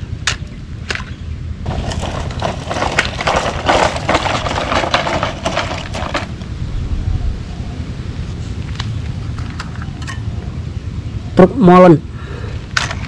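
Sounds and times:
gravel crunching: 0.0 - 6.7, 12.5 - 13.0.

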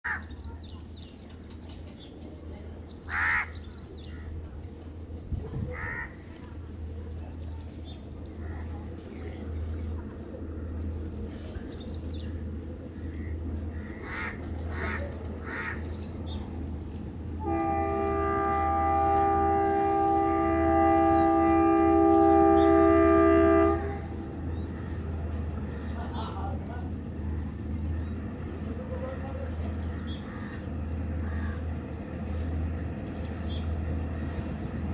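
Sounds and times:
distant locomotive engine rumble: 0.1 - 34.9
crows cawing: 3.1 - 3.6, 5.8 - 6.2, 13.2 - 15.9, 30.3 - 31.7
locomotive horn blast: 17.4 - 25.0.

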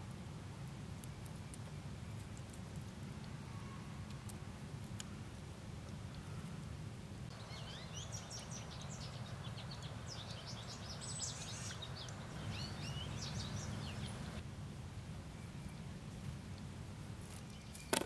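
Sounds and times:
bird chirping rapidly: 7.3 - 14.4.

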